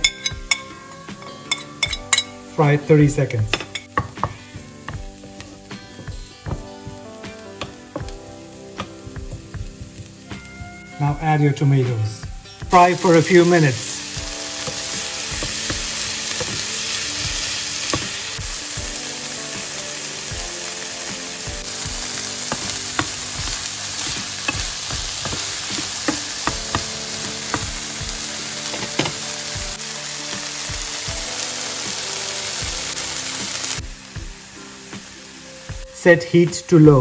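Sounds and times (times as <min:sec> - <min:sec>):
tomatoes sizzling in oil: 0:00.0 - 0:37.0
wooden spatula tapping and scraping: 0:22.4 - 0:27.8.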